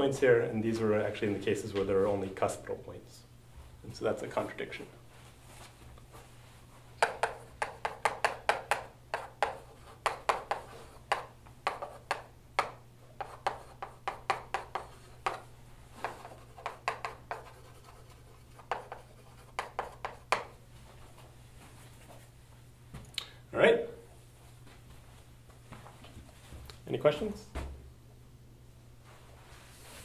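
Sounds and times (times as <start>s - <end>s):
chalk writing on a blackboard: 7.0s - 20.6s.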